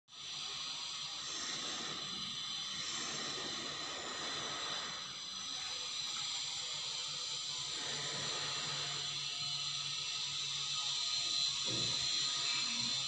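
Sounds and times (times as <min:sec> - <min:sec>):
steady hiss: 0:00.1 - 0:05.9.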